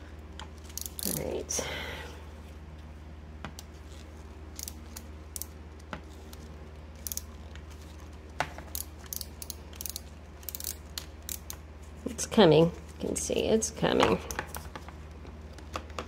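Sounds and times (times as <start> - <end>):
steady low hum: 0.0 - 16.0
ratchet screwdriver clicking: 0.7 - 1.2, 4.6 - 5.5, 7.0 - 7.3, 8.7 - 11.6.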